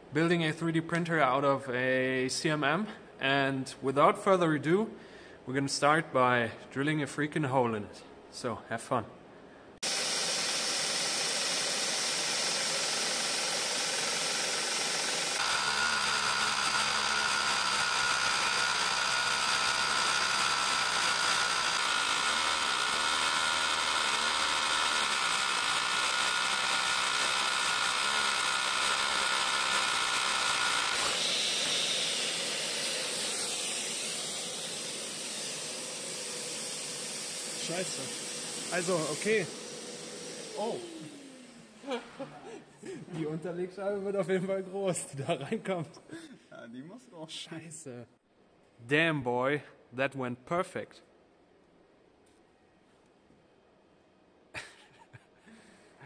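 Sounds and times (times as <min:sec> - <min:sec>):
vacuum hose hissing: 0:09.8 - 0:16.6, 0:31.1 - 0:42.0
rotary hammer drilling: 0:09.8 - 0:42.0.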